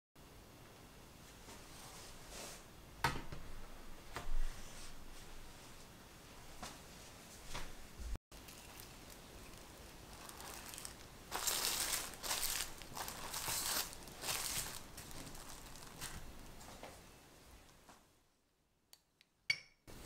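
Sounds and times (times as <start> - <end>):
cling film crinkling: 8.3 - 16.7.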